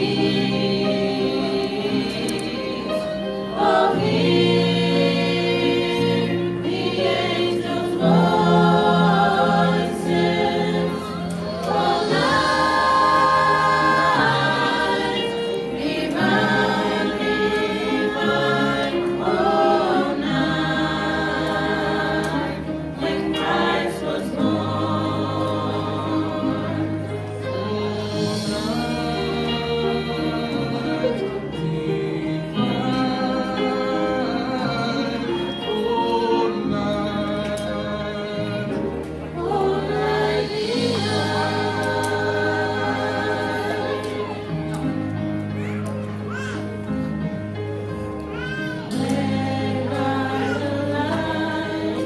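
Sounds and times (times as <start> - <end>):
mixed choir singing in harmony: 0.0 - 52.0.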